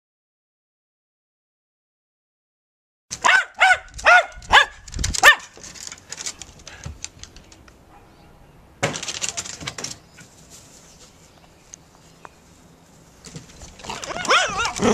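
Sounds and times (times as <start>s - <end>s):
dog barking: 3.2s - 5.5s, 7.9s - 8.5s, 13.9s - 14.9s
scuffs and clatters: 9.0s - 14.9s.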